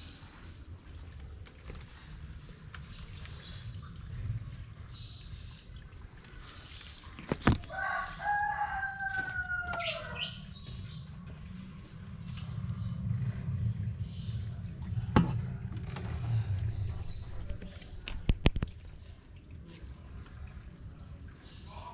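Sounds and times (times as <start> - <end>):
rooster crowing: 7.7 - 10.4.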